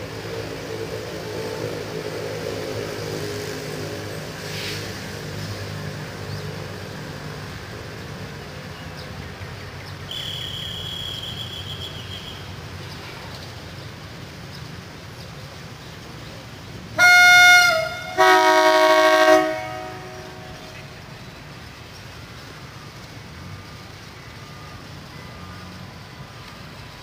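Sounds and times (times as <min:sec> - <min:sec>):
faint high whistle: 0:10.1 - 0:12.5
train air horn blasts: 0:17.0 - 0:20.8.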